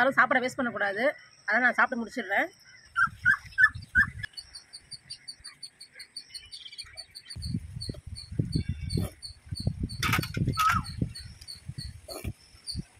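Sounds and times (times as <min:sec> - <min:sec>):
birds chirping: 0:00.0 - 0:12.9
low thumps and rumbles: 0:07.4 - 0:12.8.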